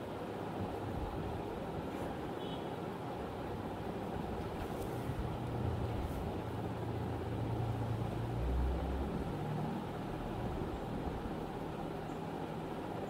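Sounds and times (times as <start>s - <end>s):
low background rumble and hum: 0.0s - 13.0s.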